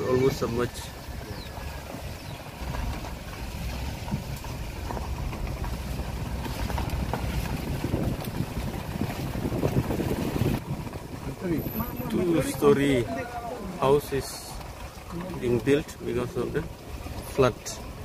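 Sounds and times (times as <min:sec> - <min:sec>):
vehicle engine running: 0:00.0 - 0:18.0
wind rumble on microphone: 0:00.8 - 0:13.1.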